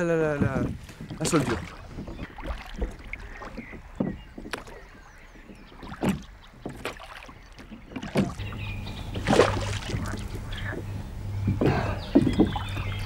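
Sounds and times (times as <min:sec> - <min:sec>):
water sloshing: 0:00.0 - 0:13.0
steady low hum: 0:08.0 - 0:13.0
pole knocking against boat hull: 0:09.2 - 0:13.0.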